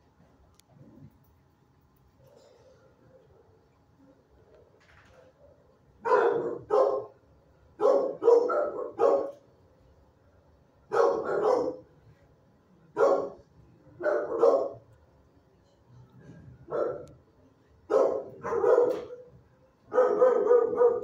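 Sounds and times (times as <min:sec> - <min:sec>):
dog barking: 0:06.0 - 0:07.2, 0:07.8 - 0:09.4, 0:10.9 - 0:11.9, 0:12.9 - 0:13.4, 0:14.0 - 0:14.8, 0:16.7 - 0:17.1, 0:17.9 - 0:19.3, 0:19.9 - 0:21.0.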